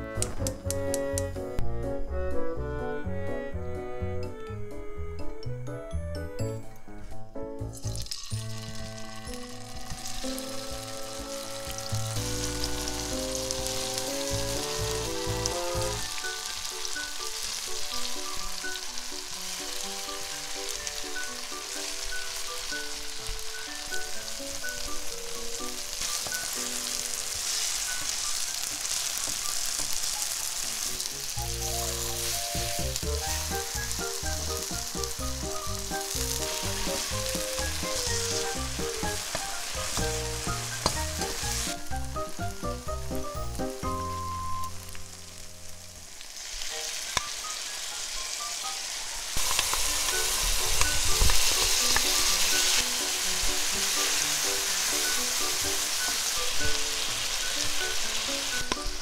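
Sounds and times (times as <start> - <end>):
background music: 0.0 - 59.0
tofu sizzling in hot oil: 7.6 - 59.0
metal spatula turning food: 34.1 - 41.9.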